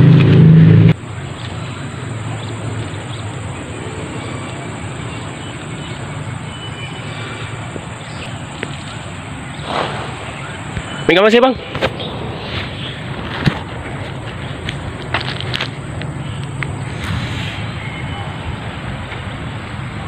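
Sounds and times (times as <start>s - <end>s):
loud low rumble: 0.0s - 1.0s, 15.8s - 20.0s
low outdoor rumble: 0.0s - 20.0s.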